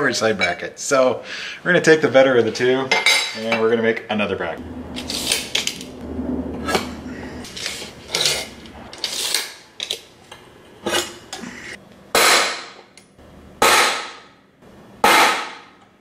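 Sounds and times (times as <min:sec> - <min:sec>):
hammer striking metal punch: 0:12.1 - 0:12.8, 0:13.6 - 0:14.3, 0:15.0 - 0:15.8.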